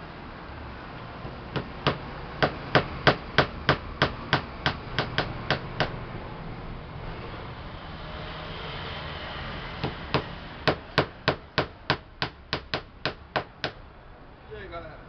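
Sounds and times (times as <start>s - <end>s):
hammer tapping nails into plywood: 1.2s - 6.0s, 9.8s - 13.8s.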